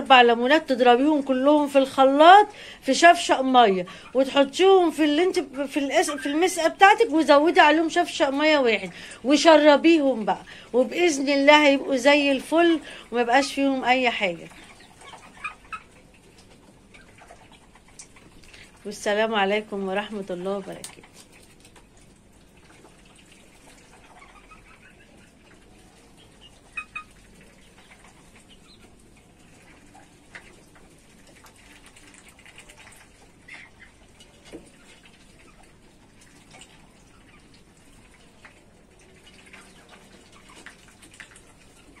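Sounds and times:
birds pecking and dabbling: 0:00.0 - 0:42.0
soft bird calls: 0:14.5 - 0:16.2, 0:23.9 - 0:30.7.

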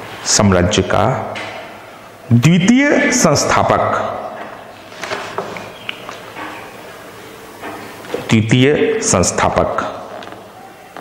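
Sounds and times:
steady background noise: 0:00.0 - 0:11.0.

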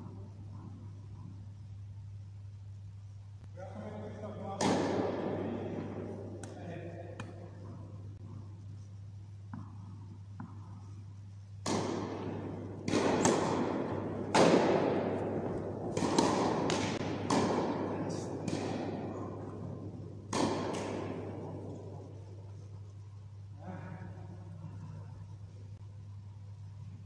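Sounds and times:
tennis ball bouncing: 0:00.0 - 0:01.4, 0:04.4 - 0:08.4, 0:09.5 - 0:22.3
steady low hum: 0:00.0 - 0:27.0
racket striking tennis ball: 0:04.4 - 0:08.3, 0:09.5 - 0:10.9, 0:11.6 - 0:22.3.

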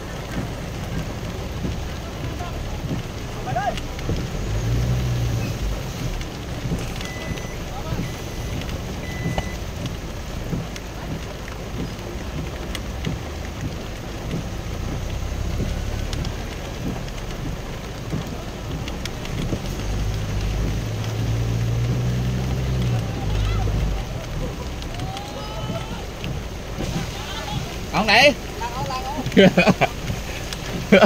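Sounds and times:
heavy rain on vehicle windshield: 0:00.0 - 0:31.0
low engine rumble: 0:00.0 - 0:31.0.

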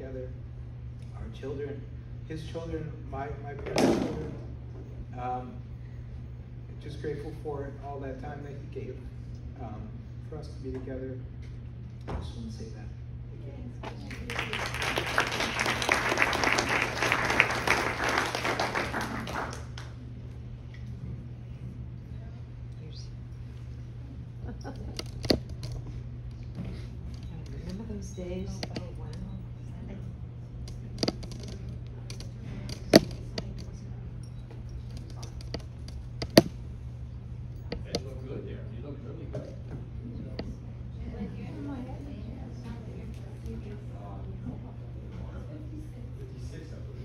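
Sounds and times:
steady low hum: 0:00.0 - 0:47.0
audience applauding: 0:14.0 - 0:20.0
sharp knocks and clicks: 0:34.9 - 0:36.6.

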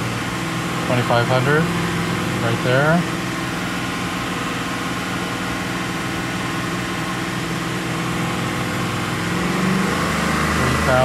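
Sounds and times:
car exhaust drone: 0:00.0 - 0:11.0.

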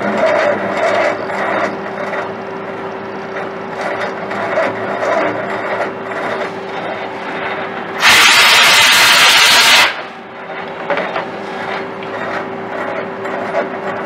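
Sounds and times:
lathe machine hum: 0:00.0 - 0:14.0
loud hiss: 0:08.0 - 0:10.1.

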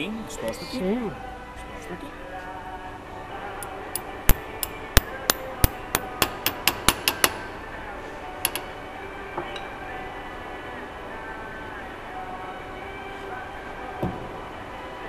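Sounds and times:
hammer strikes on metal: 0:04.0 - 0:07.4.

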